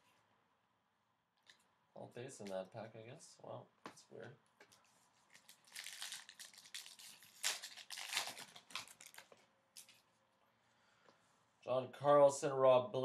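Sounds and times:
cards rustling: 4.6 - 10.1
wrapper crinkling and tearing: 5.2 - 10.1.

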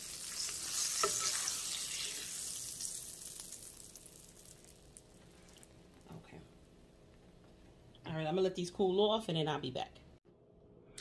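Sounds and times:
oil sizzling in frying pan: 0.0 - 5.6.

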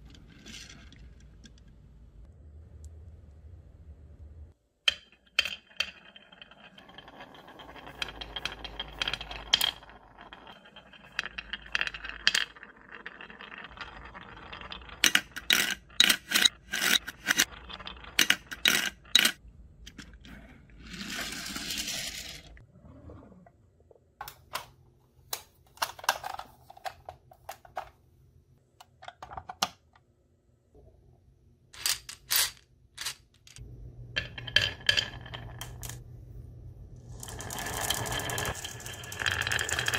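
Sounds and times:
marbles rolling on wooden tracks: 4.9 - 22.6, 31.8 - 36.0, 37.1 - 39.9
marbles clicking together: 5.8 - 19.4, 37.2 - 39.9.

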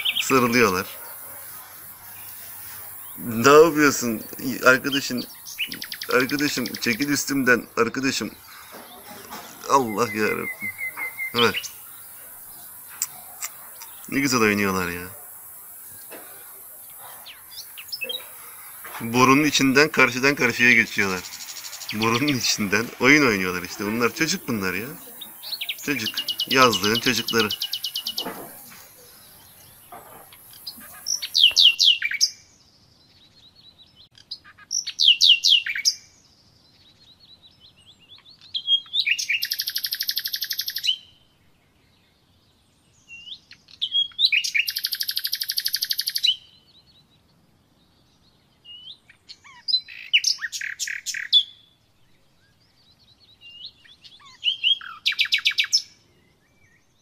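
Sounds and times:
songbird trilling: 0.0 - 32.3, 34.3 - 36.0, 38.4 - 41.0, 43.8 - 46.5, 48.8 - 51.6, 53.5 - 55.9.

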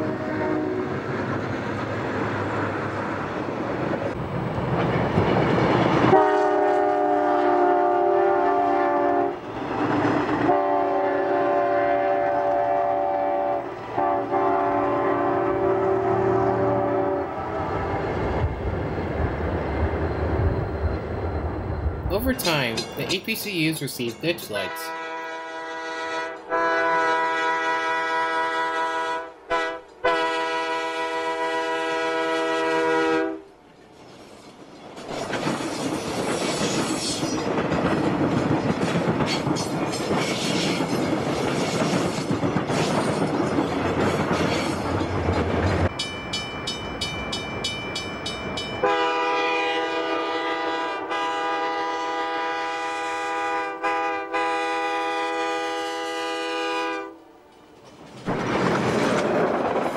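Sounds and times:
train air horn blasts: 0.0 - 0.9, 6.1 - 9.4, 10.5 - 17.5, 24.7 - 33.5, 48.8 - 57.3
train wheels clattering on rails: 3.8 - 7.1, 33.7 - 49.0, 57.5 - 59.9.

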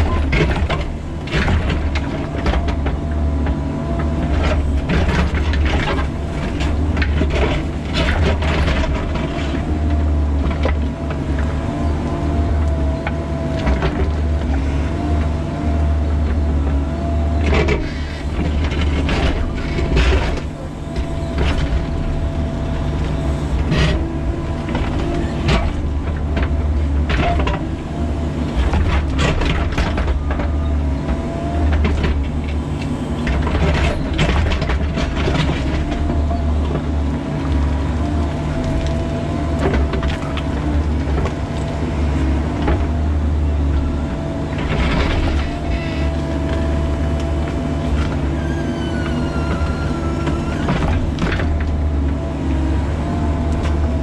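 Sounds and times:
diesel engine running: 0.0 - 54.0
hydraulic whine: 47.8 - 51.5.

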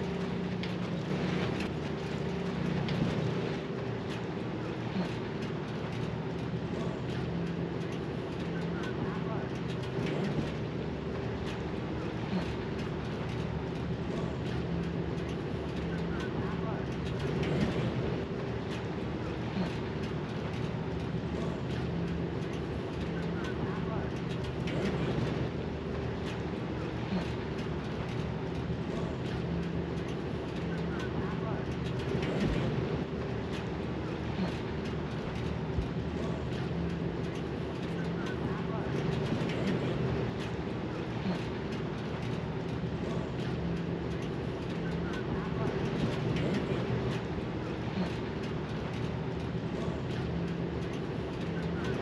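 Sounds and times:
engine hum: 0.0 - 52.0
outdoor noise: 0.0 - 52.0.

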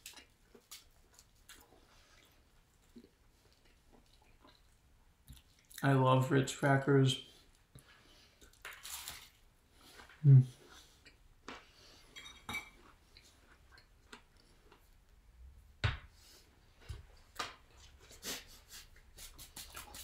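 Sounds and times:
hands rubbing together: 18.1 - 20.0.

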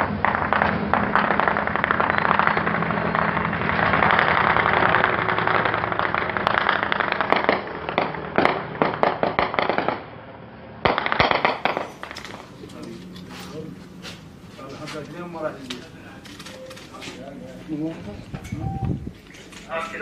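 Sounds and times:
gunfire: 0.0 - 10.2, 10.8 - 12.6
helicopter low hum: 0.0 - 20.0.

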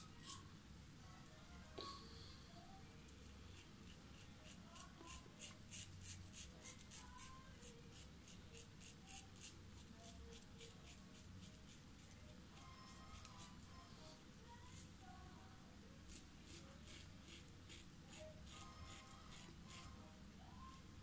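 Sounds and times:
razor scraping beard stubble: 3.6 - 12.1, 16.1 - 20.0.

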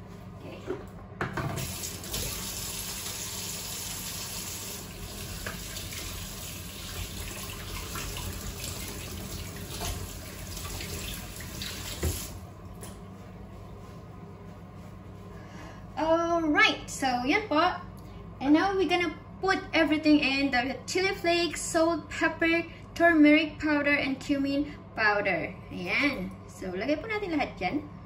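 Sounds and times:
tap water running into sink: 1.4 - 12.4.

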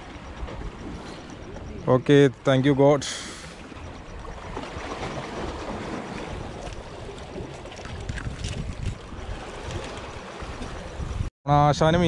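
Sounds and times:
wind on microphone: 3.3 - 11.3.

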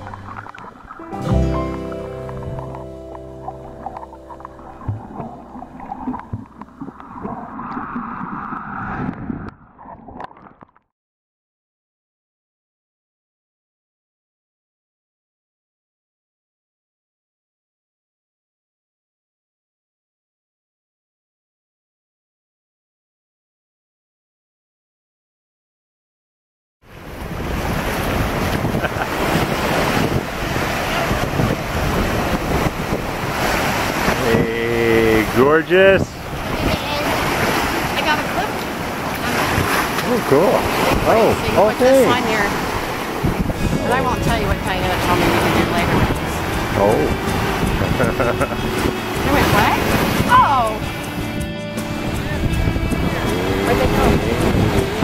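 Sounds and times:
muffled underwater sloshing and bubbles: 0.0 - 10.8
ocean surf washing in: 26.9 - 55.0
wind buffeting microphone: 27.0 - 55.0.

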